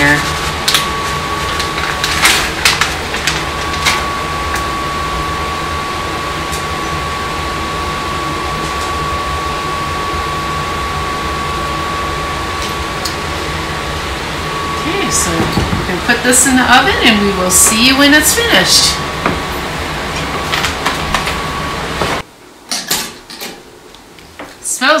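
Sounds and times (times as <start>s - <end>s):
thin high whine: 0.0s - 22.3s
steady background hum: 0.0s - 25.0s
plastic bag crinkling: 0.2s - 4.1s.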